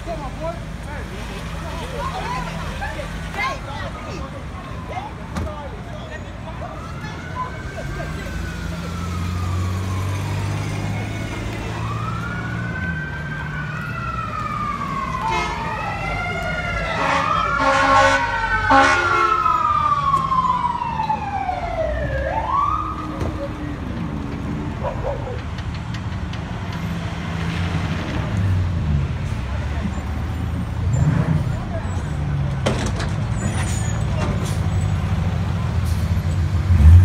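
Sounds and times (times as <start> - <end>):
fire engine sirens wailing: 0.0 - 25.6
horn blasts: 15.2 - 15.7, 16.8 - 19.5.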